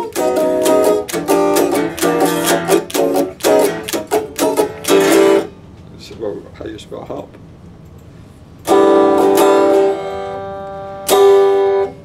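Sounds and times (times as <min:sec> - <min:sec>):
electric guitar strummed chords: 0:00.0 - 0:05.5, 0:08.6 - 0:12.0.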